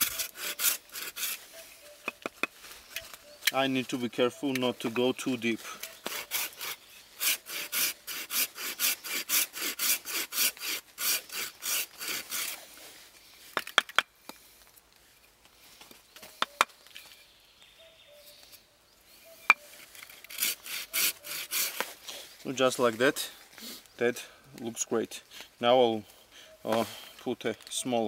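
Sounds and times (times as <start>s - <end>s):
hand saw cutting wood: 0.0s - 2.4s, 5.7s - 12.7s, 19.5s - 22.0s.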